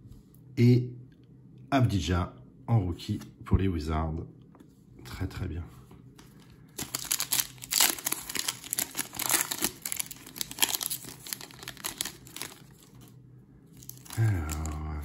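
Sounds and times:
foil wrapper tearing and crinkling: 6.7s - 13.1s, 13.7s - 15.0s.

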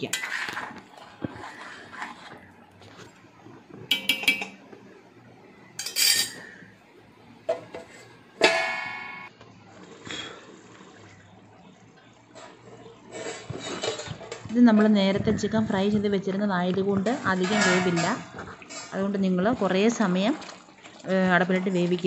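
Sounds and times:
ladle scraping in a pan: 0.0s - 4.5s, 12.3s - 14.4s, 17.1s - 19.2s
metal lid clanging on pan: 3.9s - 4.6s, 8.4s - 9.3s.

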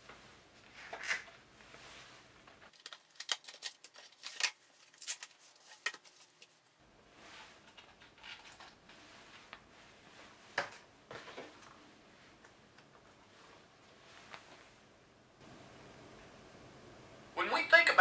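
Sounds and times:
cardboard sliding brush: 1.5s - 2.6s, 7.0s - 12.4s.

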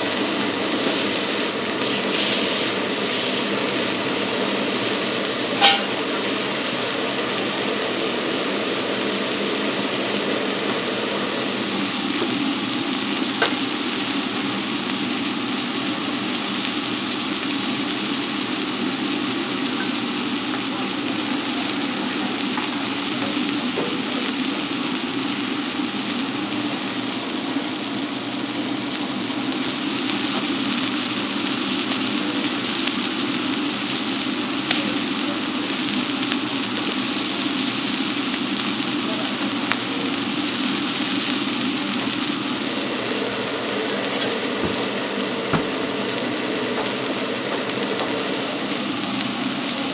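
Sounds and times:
steak sizzling: 0.0s - 49.9s
sharp clack: 5.6s - 6.0s.

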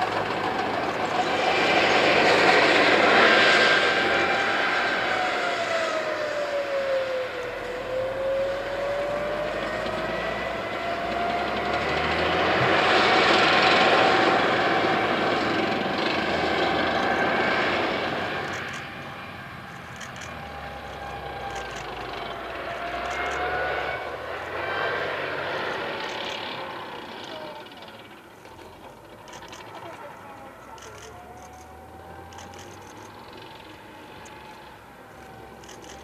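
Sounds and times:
heavy rushing noise: 0.0s - 7.4s
tracked vehicle engine whine: 0.0s - 36.0s.

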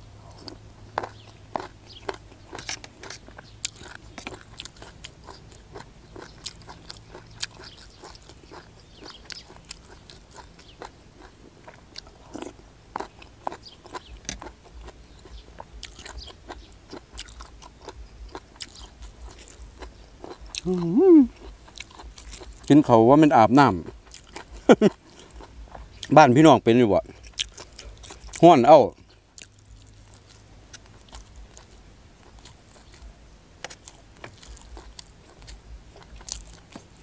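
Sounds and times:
chewing and crunching: 0.1s - 37.0s
wet mouth sounds: 19.5s - 22.1s.

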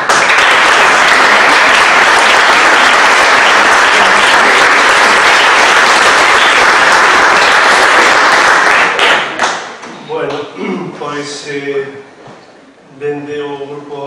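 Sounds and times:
crowd applauding: 0.0s - 9.8s.

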